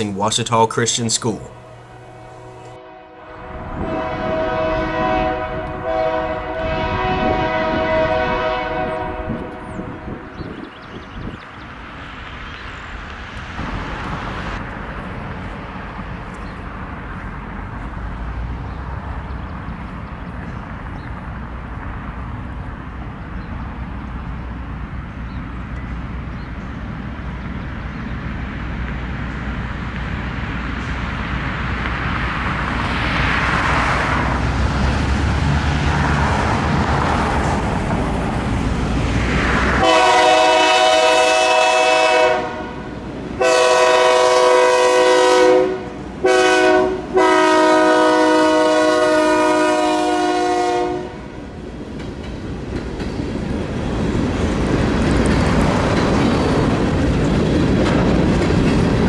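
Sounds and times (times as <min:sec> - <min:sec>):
diesel locomotive engine rumble: 0:00.0 - 0:59.0
train air horn: 0:01.9 - 0:10.2, 0:39.8 - 0:51.4.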